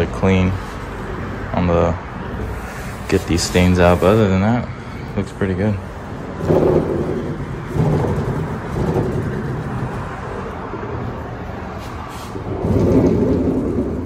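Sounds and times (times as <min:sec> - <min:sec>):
foosball rods spinning whir: 0:06.1 - 0:11.2, 0:11.8 - 0:14.0.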